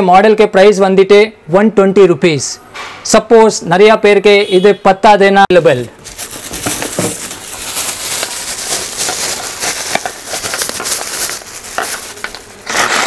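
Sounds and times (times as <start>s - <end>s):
plastic crackling and crinkling: 5.6s - 13.0s.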